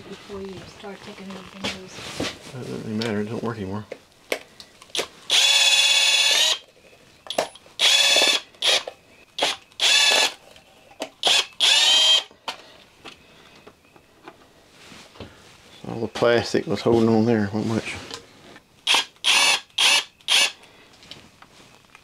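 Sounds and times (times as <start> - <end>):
cordless drill whining: 5.0 - 6.6, 7.3 - 10.4, 11.2 - 12.3, 18.8 - 20.6.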